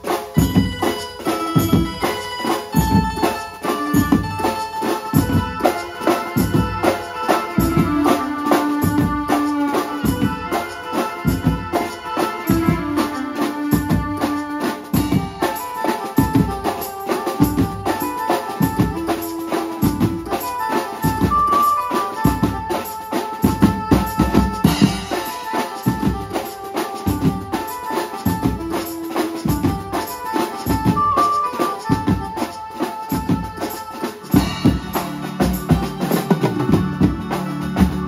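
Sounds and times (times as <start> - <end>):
drum kit: 0.0 - 38.0
electric banjo: 0.0 - 38.0
keyboard playing held notes: 0.0 - 38.0
tom drums beating steady rhythm: 0.0 - 38.0.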